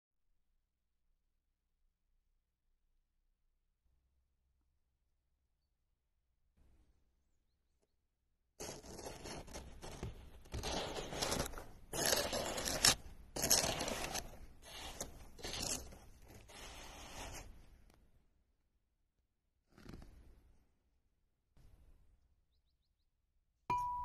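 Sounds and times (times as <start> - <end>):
snow crunching and scraping: 8.6 - 17.9, 19.7 - 20.6.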